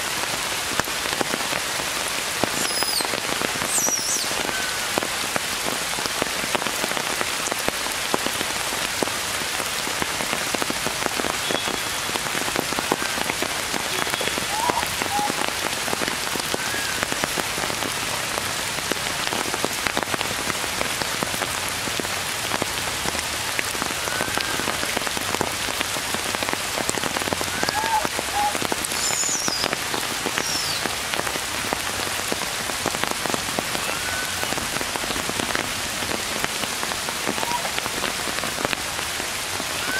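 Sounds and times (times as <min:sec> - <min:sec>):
rain falling on leaves: 0:00.0 - 0:39.9.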